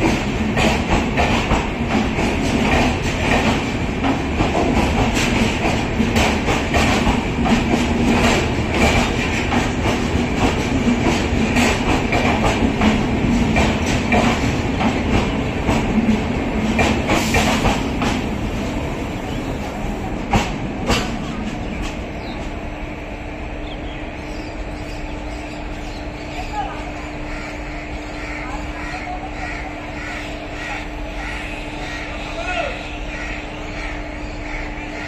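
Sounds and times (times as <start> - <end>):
train wheels clicking over rail joints: 0.0 - 22.7
train rumble: 0.0 - 35.0.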